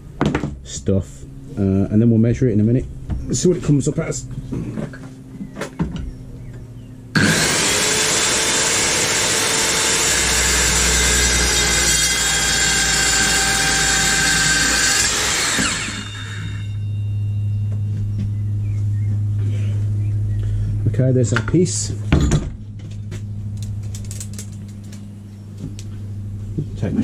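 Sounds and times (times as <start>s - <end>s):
steady low hum: 0.0s - 7.2s, 9.8s - 27.0s
circular saw cutting plastic: 7.2s - 16.8s.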